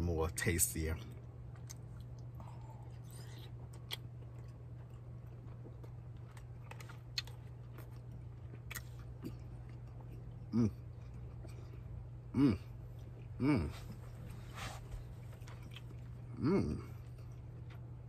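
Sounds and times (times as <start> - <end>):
low hum: 0.0 - 18.0
man chewing food: 1.1 - 18.0.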